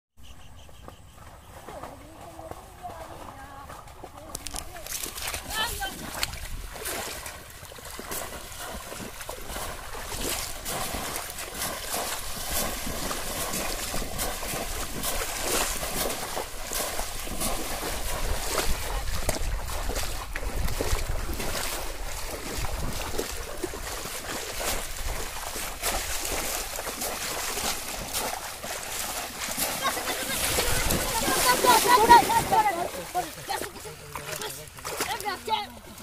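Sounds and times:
water splashing and sloshing: 0.5 - 36.0
wind rumbling on microphone: 11.9 - 27.7, 30.2 - 32.6.

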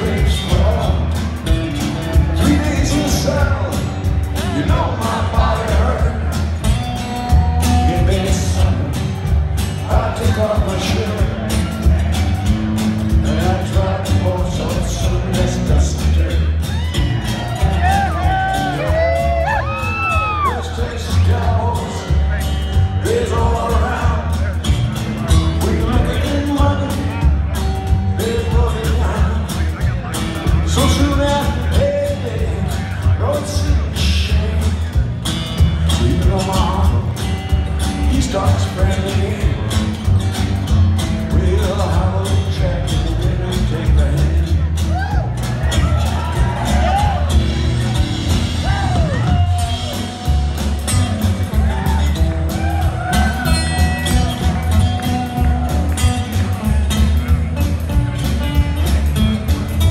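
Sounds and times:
man singing: 0.0 - 12.2, 13.1 - 48.0
acoustic guitar: 0.0 - 59.9
drums: 0.0 - 59.9
live band music: 0.0 - 59.9
upright bass: 0.0 - 59.9
crowd whooping: 16.3 - 21.7, 44.8 - 57.4.

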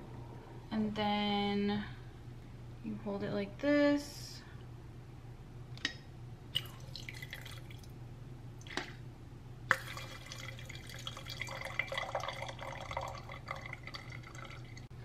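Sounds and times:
wine trickling into glass: 9.7 - 14.8.

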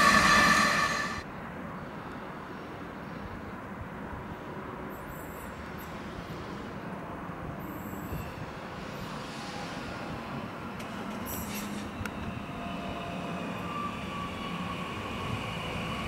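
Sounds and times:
short high hisses: 0.0 - 1.2
train rumbling: 0.0 - 1.3, 8.0 - 16.0.

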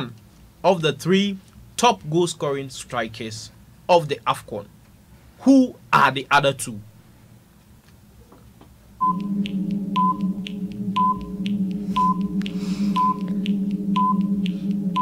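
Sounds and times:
low drone countdown music: 9.0 - 15.0
short high beeps: 13.0 - 13.3.

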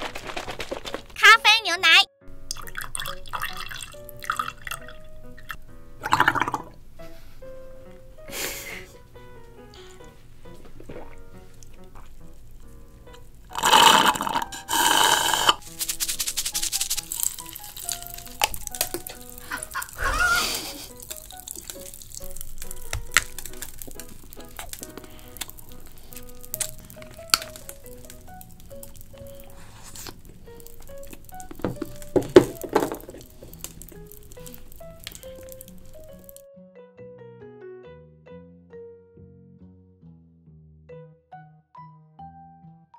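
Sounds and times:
milk pouring: 0.0 - 1.2, 2.4 - 6.8, 9.7 - 36.4
background music: 0.0 - 42.9
slurping through a straw: 2.5 - 6.8, 13.5 - 31.4
hard chocolate bitten with crack: 10.8 - 15.8, 16.7 - 36.4
cartoon chicken squawk: 19.5 - 20.7.

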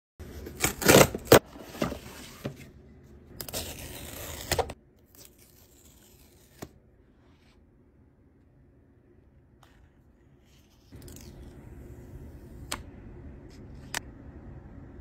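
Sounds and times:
cardboard and paper tearing: 3.4 - 6.7.

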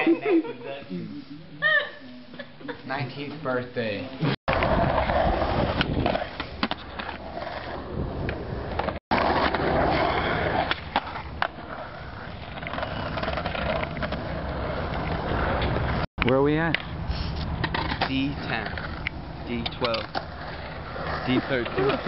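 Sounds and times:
skateboard wheels rolling on concrete: 3.0 - 22.0
skateboard trucks grinding: 4.2 - 22.0.

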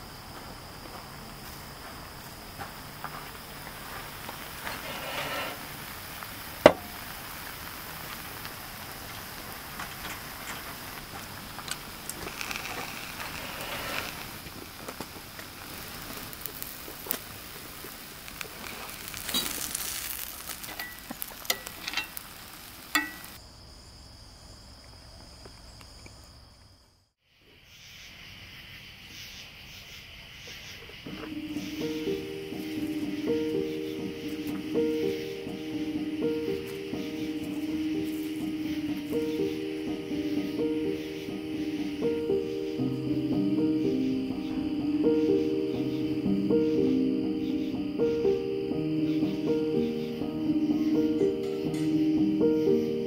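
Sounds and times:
high insect drone: 0.0 - 53.0
insects chirping: 0.0 - 53.0
food sizzling and crackling: 2.9 - 23.4, 31.0 - 46.4.

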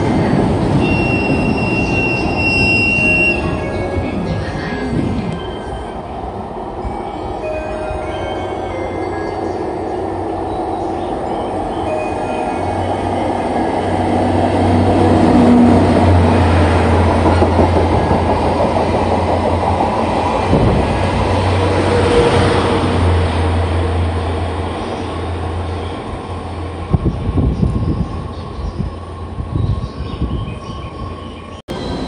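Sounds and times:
passenger train rolling past: 0.0 - 32.0
train wheels on rails: 9.4 - 32.0.

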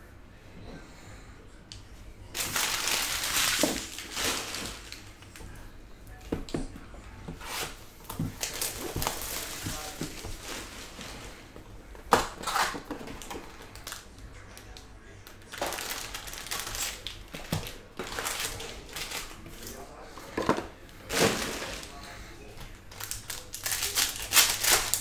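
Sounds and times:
foil packs crinkling: 2.4 - 5.4, 7.4 - 11.5, 12.1 - 19.8, 21.0 - 22.2, 22.9 - 25.0.

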